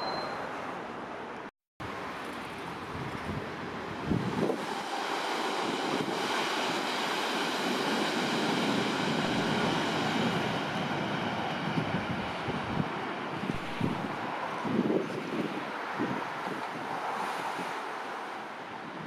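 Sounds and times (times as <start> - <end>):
train wheels rolling on rails: 2.2 - 18.3
train high whine: 4.2 - 14.6.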